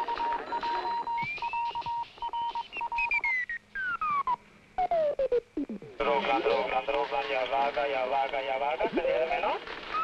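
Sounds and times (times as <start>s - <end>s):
morse code beeping: 0.0s - 5.9s.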